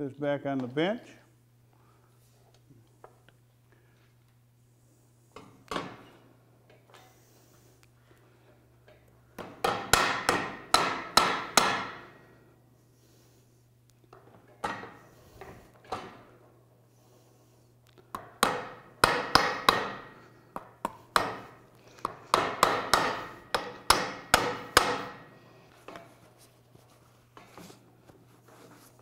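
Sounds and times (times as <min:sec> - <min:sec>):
hammer striking metal: 0:09.6 - 0:12.0, 0:18.4 - 0:20.1, 0:22.3 - 0:25.3.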